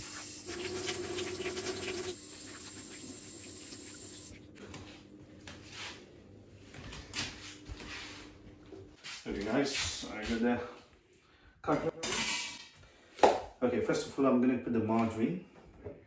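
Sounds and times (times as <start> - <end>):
tap water running into sink: 0.0 - 4.3.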